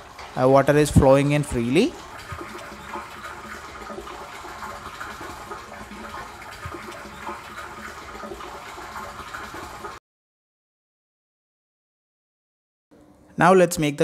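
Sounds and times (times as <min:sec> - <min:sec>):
water pouring from pipe into tank: 0:00.0 - 0:10.0.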